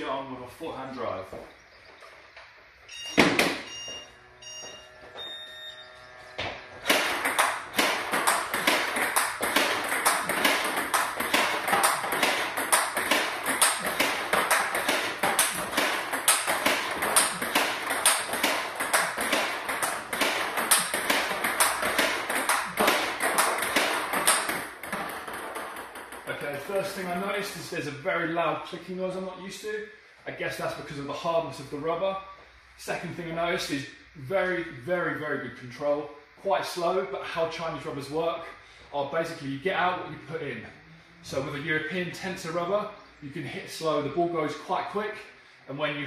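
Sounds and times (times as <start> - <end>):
short beeps: 2.8 - 6.1
table tennis bat hitting ball: 3.2 - 3.7, 6.4 - 27.2
ball bouncing on table: 6.4 - 26.6.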